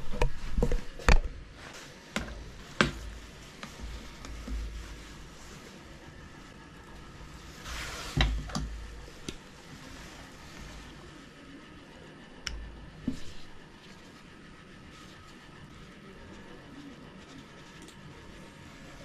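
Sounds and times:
cable rustling: 0:00.0 - 0:11.3.

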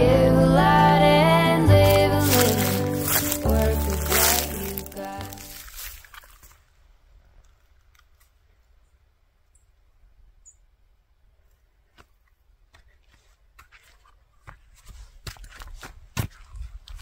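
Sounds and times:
footsteps of clogs on rock: 0:01.9 - 0:06.3, 0:12.0 - 0:17.0.

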